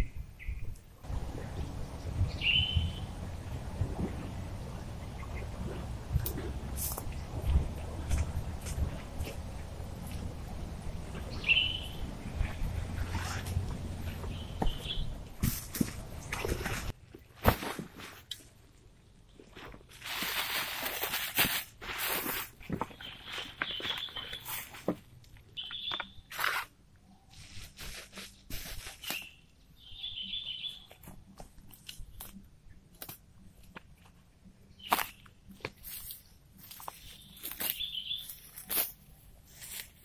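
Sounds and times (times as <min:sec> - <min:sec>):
small bird chirping: 0:02.2 - 0:03.1, 0:11.3 - 0:12.0, 0:25.6 - 0:26.3, 0:29.1 - 0:31.0, 0:37.0 - 0:38.6
backpack rustling on pine needles: 0:20.0 - 0:24.8, 0:35.8 - 0:40.0
footsteps on pine needles: 0:34.9 - 0:40.0.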